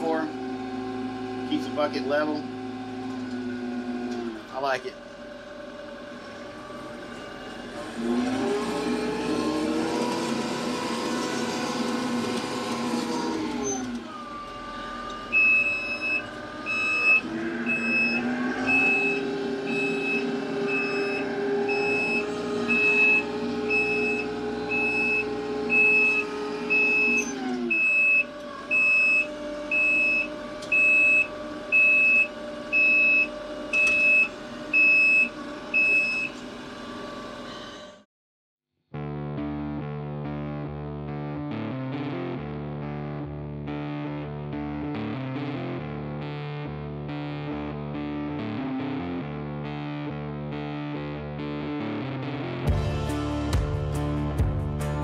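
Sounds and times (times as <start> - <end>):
tractor diesel engine running: 0.0 - 37.5
reverse alarm beeping: 15.3 - 36.4.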